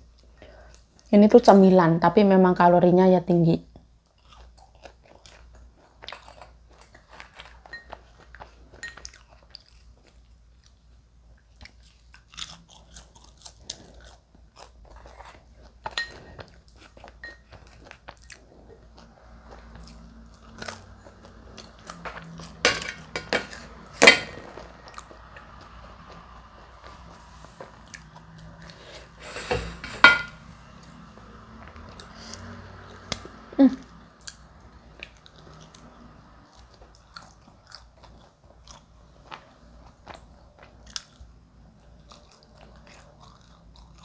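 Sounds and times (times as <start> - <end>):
chewing crunchy fries: 4.0 - 28.9, 34.1 - 44.0.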